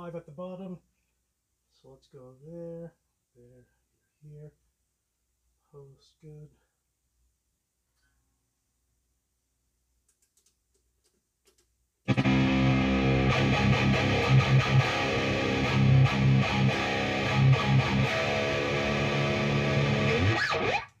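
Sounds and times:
distorted electric guitar riffing: 12.1s - 20.9s.

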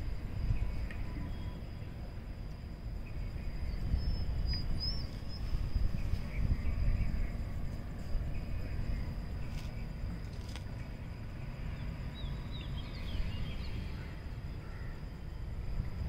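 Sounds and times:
low rumbling noise: 0.0s - 16.0s
faint bird chirps: 0.4s - 2.1s, 3.0s - 15.1s.

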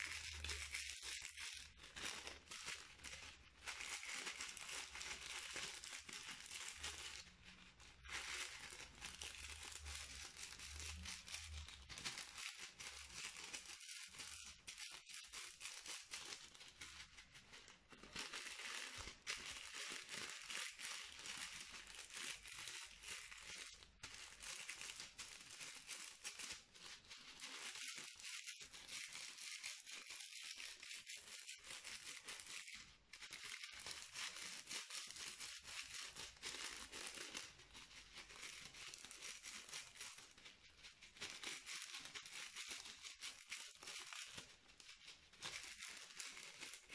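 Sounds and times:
plastic bag crinkling: 0.0s - 46.9s.

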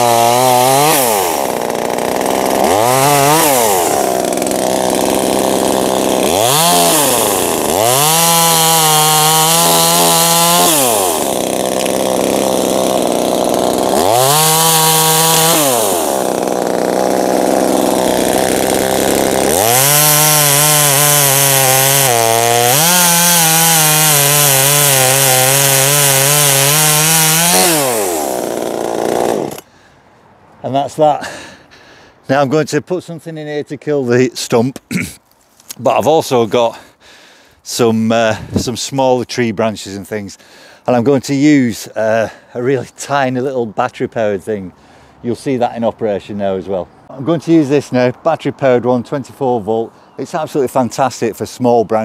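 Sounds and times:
chainsaw revving and idling: 0.0s - 29.7s.

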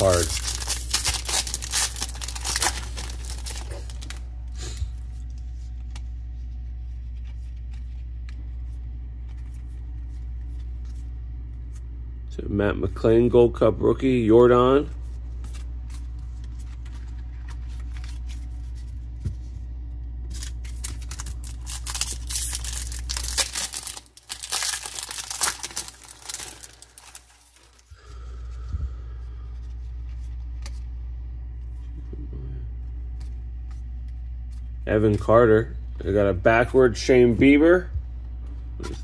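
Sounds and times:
foil wrapper tearing and crinkling: 0.0s - 4.2s, 20.3s - 27.9s
low hum: 0.0s - 39.0s.

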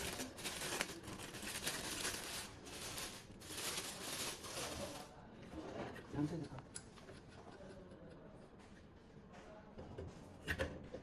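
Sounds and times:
plastic bag rustling: 0.0s - 5.2s.

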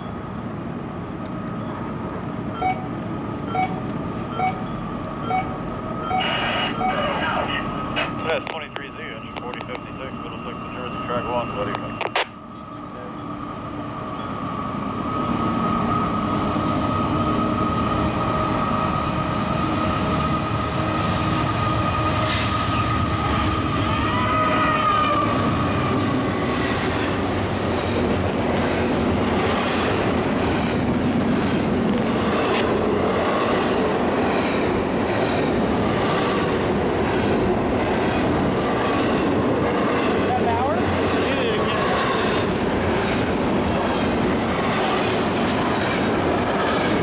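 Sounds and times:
freight cars rumbling: 0.0s - 47.0s
locomotive whine: 0.0s - 47.0s
wheels clacking over rail joints: 25.8s - 47.0s.

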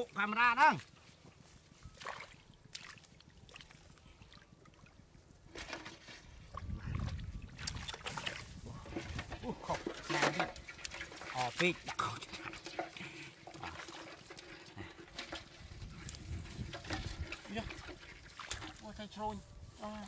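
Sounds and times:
hands squelching in wet mud: 0.8s - 5.0s, 6.4s - 19.2s.

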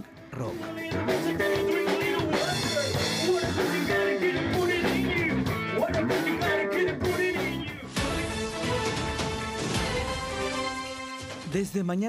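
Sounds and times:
drums: 0.0s - 11.9s
man singing: 0.4s - 8.2s.

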